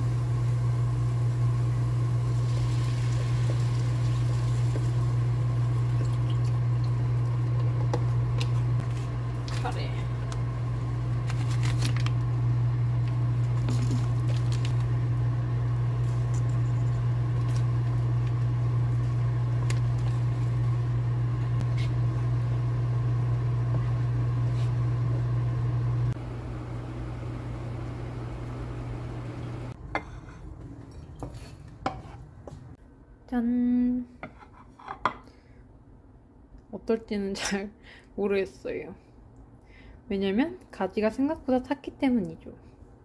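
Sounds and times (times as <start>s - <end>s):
appliance motor humming: 0.0s - 29.8s.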